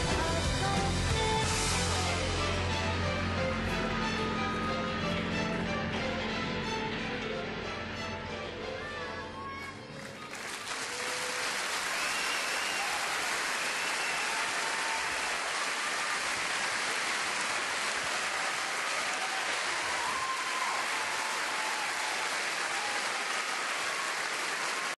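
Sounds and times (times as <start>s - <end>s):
audience applause: 9.9s - 25.0s.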